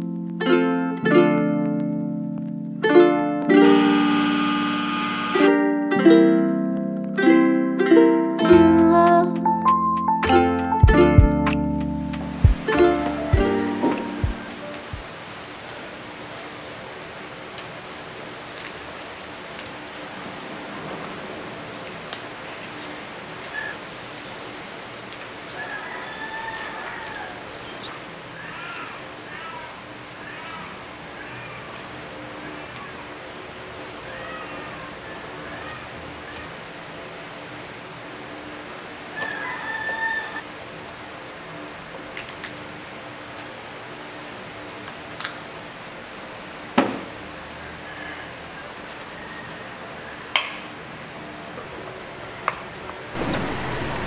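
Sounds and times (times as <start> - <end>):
steady rain-like hiss: 0.0 - 54.0
faint wavering high tone: 3.5 - 5.8.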